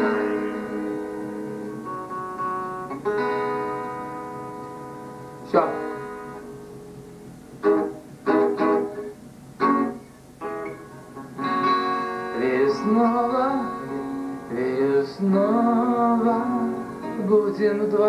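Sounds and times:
acoustic guitar playing: 0.0s - 18.0s
man's wordless singing: 5.5s - 6.1s, 12.3s - 18.0s.

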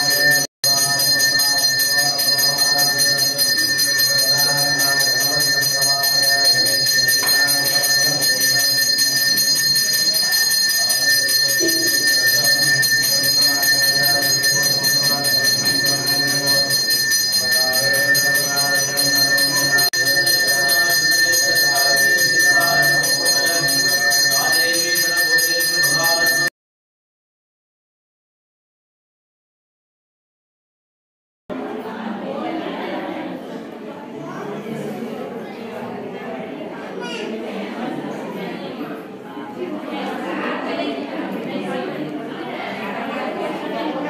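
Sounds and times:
temple bell ringing rapidly: 0.0s - 26.5s
voices: 0.0s - 26.5s, 31.6s - 44.0s.

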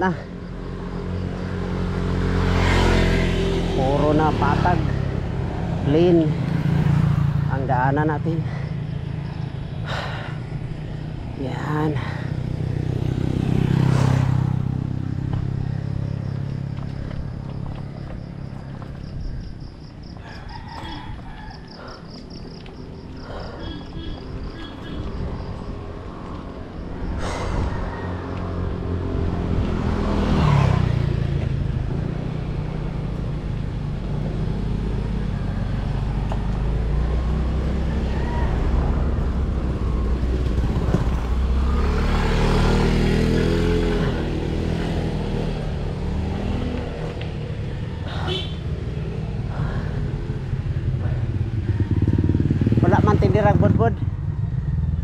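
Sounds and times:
motorcycle engine drone: 0.0s - 55.0s
bike tyre rumble on pavement: 4.8s - 55.0s
wind noise: 27.1s - 30.4s.

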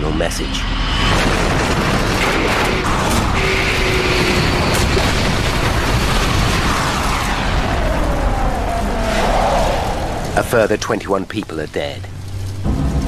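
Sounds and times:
falling whine: 0.0s - 13.0s
explosion rumbling boom: 0.8s - 10.8s.

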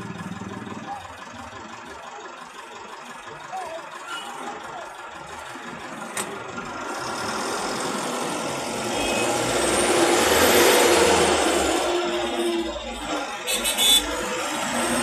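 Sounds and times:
vehicle engine accelerating: 0.0s - 3.8s, 4.5s - 15.0s
road noise: 0.0s - 15.0s.

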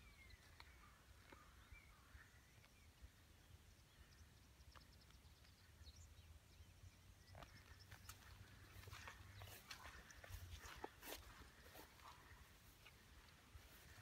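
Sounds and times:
faint high chirps and ticks: 0.0s - 14.0s.

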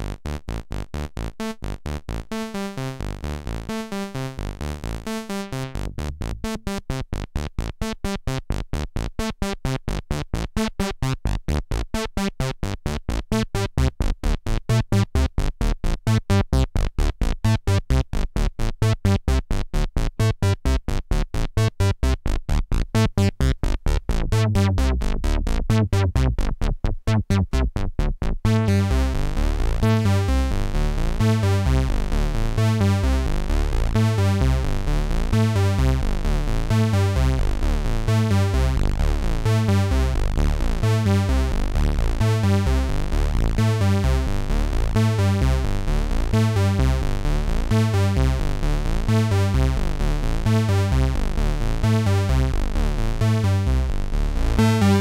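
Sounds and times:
synthesizer bass pattern: 0.0s - 7.9s, 20.2s - 55.0s.

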